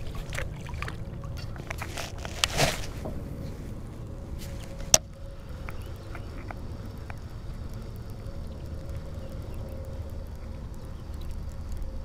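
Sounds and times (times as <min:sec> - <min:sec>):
wind rumbling on microphone: 0:00.0 - 0:12.0
faint ticks: 0:04.4 - 0:12.0.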